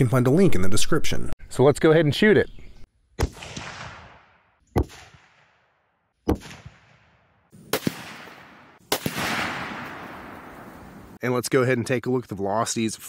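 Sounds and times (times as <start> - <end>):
rifle shots echoing: 3.2 - 11.2.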